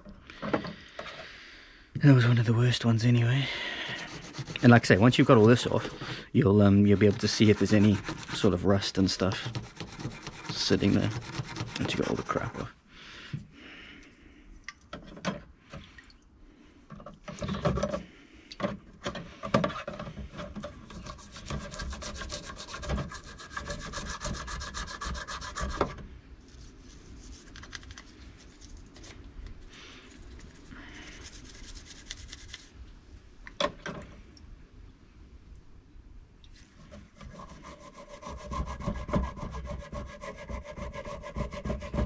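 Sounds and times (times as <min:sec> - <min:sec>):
toothbrush scrubbing metal parts: 0:03.8 - 0:12.7, 0:20.8 - 0:25.8, 0:26.5 - 0:29.2, 0:30.1 - 0:32.7, 0:37.1 - 0:42.0.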